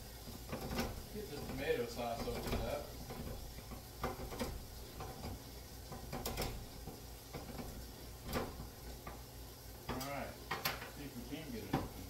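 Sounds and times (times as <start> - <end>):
kitchen utensils clicking: 0.4 - 8.7.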